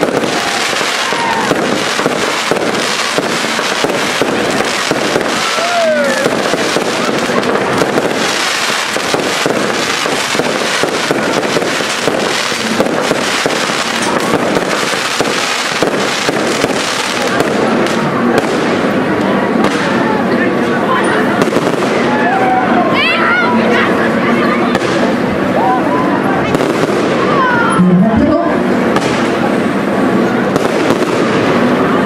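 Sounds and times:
fireworks firing rapid shots: 0:00.0 - 0:22.5, 0:24.6 - 0:25.5, 0:26.3 - 0:32.0.

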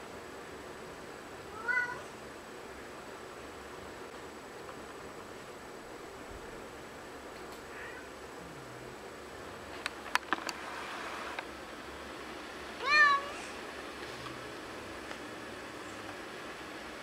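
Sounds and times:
cat meowing: 0:01.5 - 0:02.1, 0:07.7 - 0:08.2, 0:12.8 - 0:13.4.

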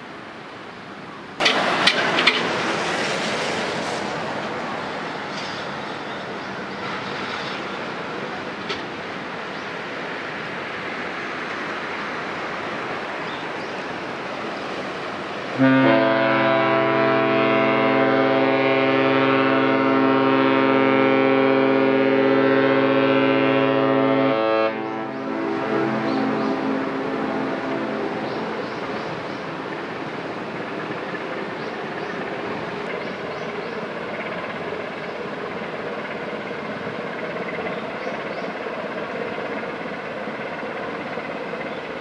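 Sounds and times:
steady rushing noise: 0:00.0 - 0:15.6, 0:25.2 - 0:42.0
deep ship horn blast: 0:15.5 - 0:29.4.

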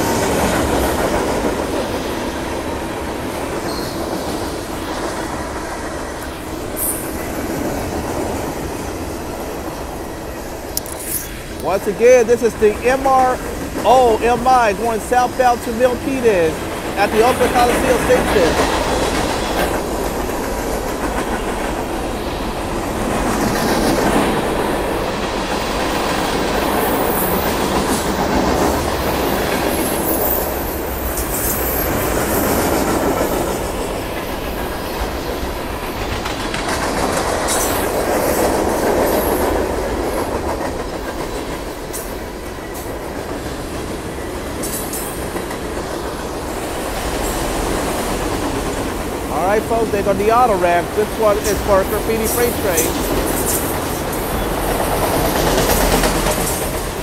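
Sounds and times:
high wheel squeals: 0:03.7 - 0:04.2
train wheels clacking over rail joints: 0:16.6 - 0:30.4, 0:31.0 - 0:50.2, 0:51.0 - 0:57.0.

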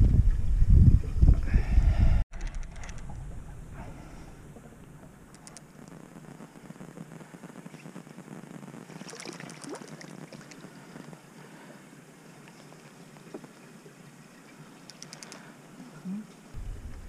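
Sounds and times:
quick light clicks: 0:14.8 - 0:15.4.

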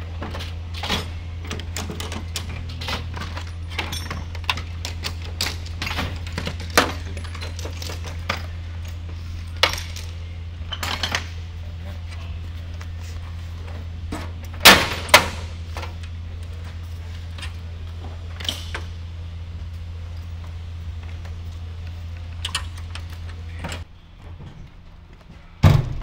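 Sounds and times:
steady low hum: 0:00.0 - 0:26.0
metal tools clinking in drawer: 0:00.8 - 0:08.5, 0:09.6 - 0:11.4.

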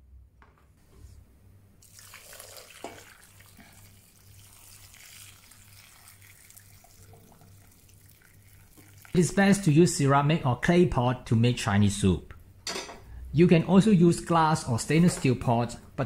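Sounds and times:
water pouring and splashing: 0:01.8 - 0:09.4.

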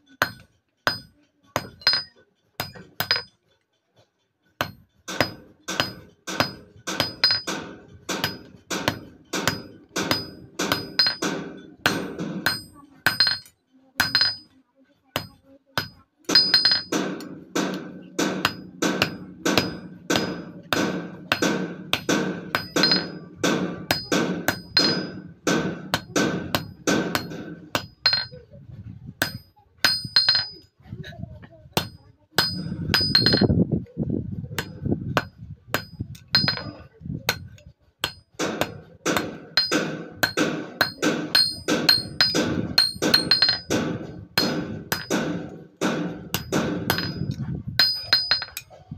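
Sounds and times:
hammer tapping metal on anvil: 0:00.0 - 0:03.6, 0:04.6 - 0:28.5, 0:29.2 - 0:30.6, 0:31.8 - 0:33.6, 0:34.6 - 0:48.8.

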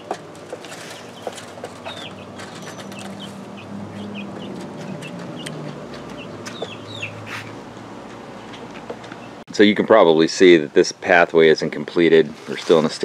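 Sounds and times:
chickens clucking: 0:00.0 - 0:09.4.

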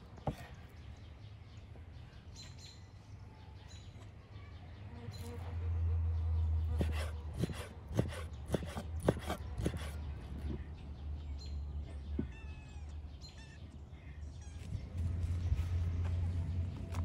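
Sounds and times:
knife chopping on wooden board: 0:06.8 - 0:10.6.

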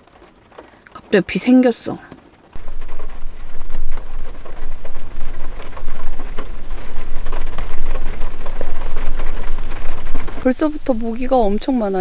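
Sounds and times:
rain pattering on car roof: 0:00.0 - 0:12.0
low rumble: 0:02.6 - 0:12.0.

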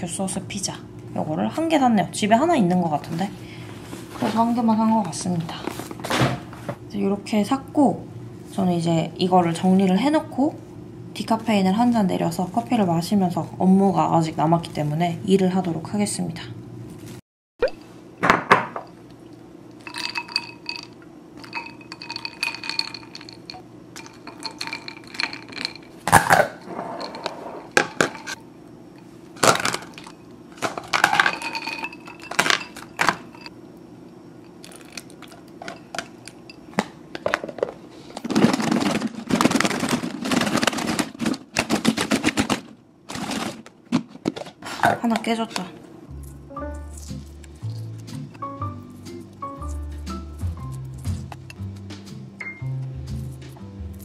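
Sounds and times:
container shaken with fast rattle: 0:19.8 - 0:28.4, 0:29.4 - 0:33.5
eggs clinking in plastic container: 0:19.8 - 0:28.4, 0:29.4 - 0:33.5.

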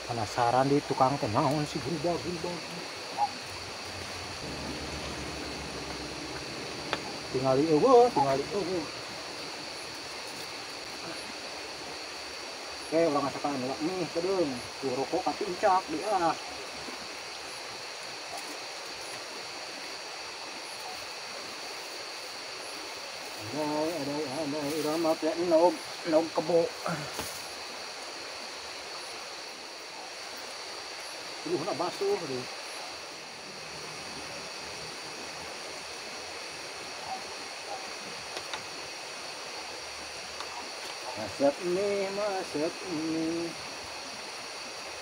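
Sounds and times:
river rushing: 0:00.0 - 0:45.0
faint clicks: 0:38.3 - 0:38.7.

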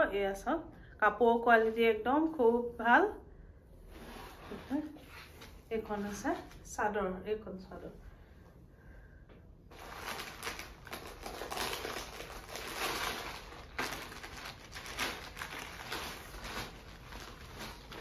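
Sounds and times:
cloth rustling and crinkling: 0:03.9 - 0:06.7, 0:09.7 - 0:18.0.

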